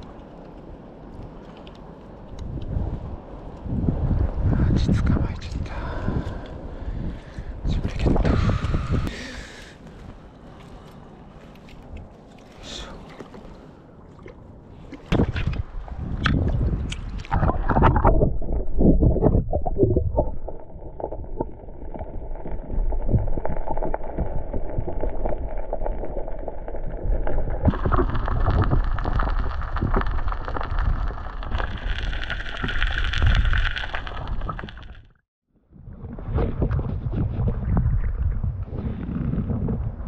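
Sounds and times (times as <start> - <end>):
muffled underwater rumbling: 14.8 - 40.0
sharp pops and clicks: 16.2 - 22.1, 27.6 - 35.2.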